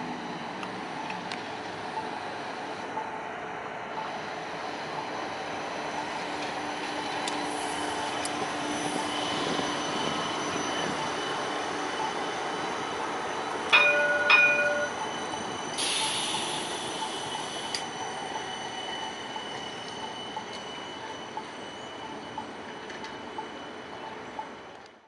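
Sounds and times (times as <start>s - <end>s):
streetcar rolling hum: 0.0s - 25.0s
loud metallic rings: 13.8s - 15.0s.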